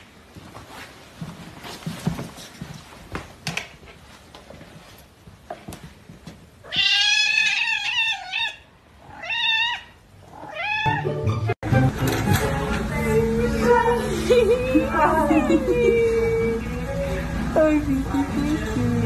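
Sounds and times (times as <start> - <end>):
cats yowling: 6.6 - 11.0.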